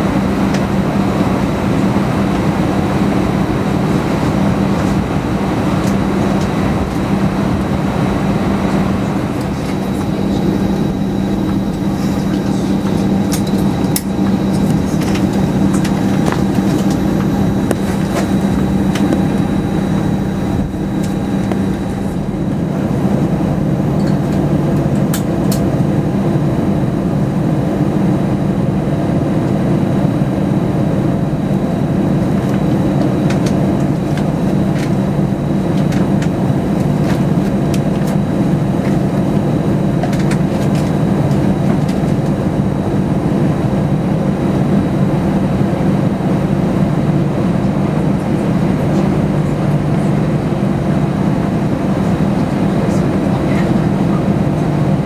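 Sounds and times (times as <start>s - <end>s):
faint high whine: 0.0s - 37.1s
jet engines low rumble: 0.0s - 55.0s.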